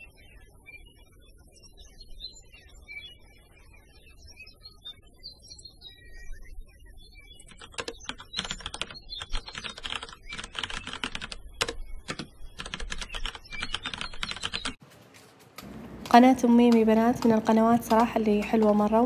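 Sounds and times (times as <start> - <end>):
keyboard typing: 7.5 - 14.8, 15.4 - 19.0.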